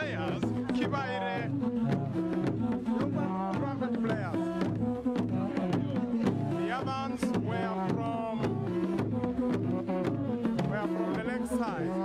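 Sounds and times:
steady drumming: 0:00.0 - 0:12.0.

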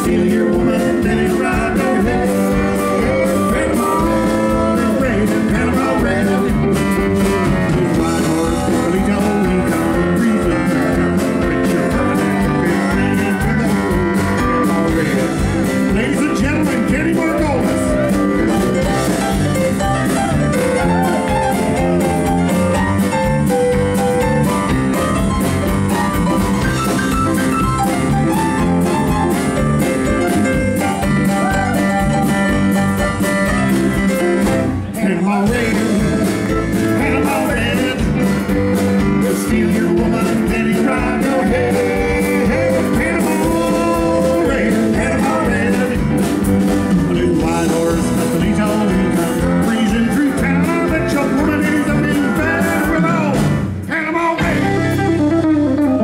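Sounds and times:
person singing: 0:00.0 - 0:19.9, 0:20.5 - 0:22.8, 0:30.3 - 0:32.4, 0:34.8 - 0:55.0
drum kit: 0:00.0 - 0:56.0
electric bass: 0:00.0 - 0:56.0
electric guitar: 0:00.0 - 0:56.0
keyboard: 0:00.0 - 0:56.0.

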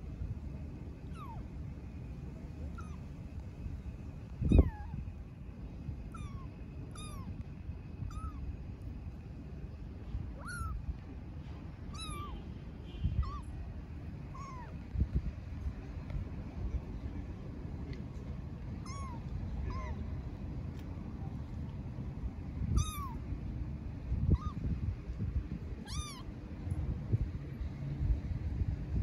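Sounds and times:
kitten meowing: 0:01.1 - 0:01.4, 0:02.7 - 0:03.0, 0:04.4 - 0:05.0, 0:06.1 - 0:07.3, 0:08.0 - 0:08.4, 0:10.4 - 0:10.8, 0:11.9 - 0:12.4, 0:13.2 - 0:13.5, 0:14.3 - 0:14.8, 0:18.8 - 0:20.0, 0:22.7 - 0:23.2, 0:24.2 - 0:24.6, 0:25.8 - 0:26.3.

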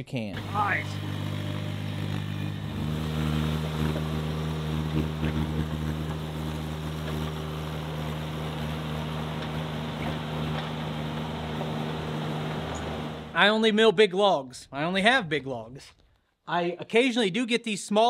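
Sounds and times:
mini loader engine running: 0:00.4 - 0:13.4.

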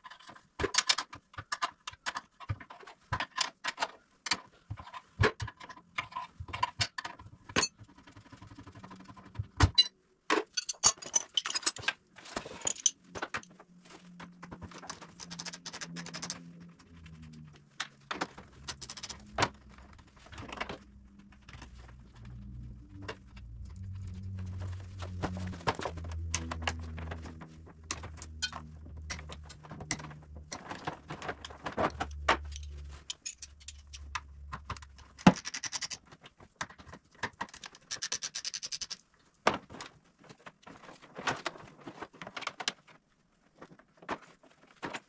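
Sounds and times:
metal tools clinking: 0:10.5 - 0:11.9, 0:32.4 - 0:34.1
sharp metallic clicks: 0:14.9 - 0:16.4, 0:18.6 - 0:19.3, 0:32.4 - 0:36.0.

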